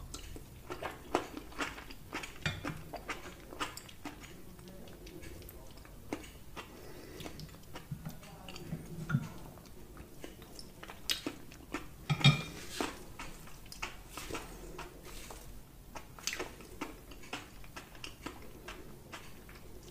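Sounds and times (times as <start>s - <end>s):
chewing: 0.0s - 19.9s.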